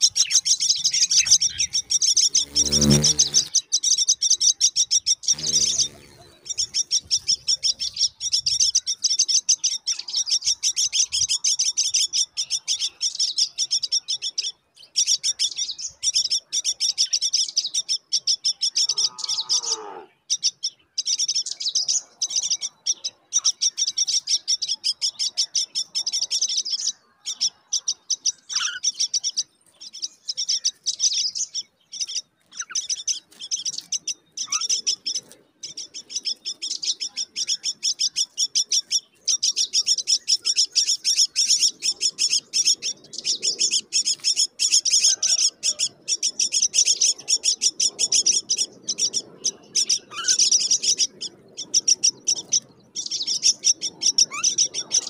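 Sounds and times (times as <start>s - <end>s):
nestlings begging chirps: 0.0s - 55.0s
bird call sliding down: 2.2s - 3.6s.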